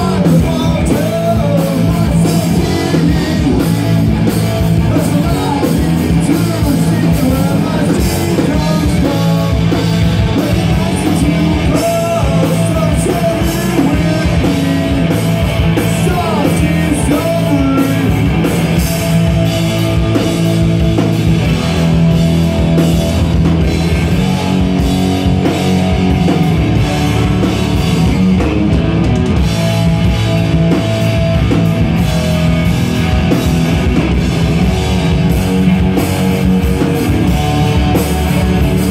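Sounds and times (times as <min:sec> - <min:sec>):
distorted electric guitars: 0:00.0 - 0:38.9
drum kit: 0:00.0 - 0:38.9.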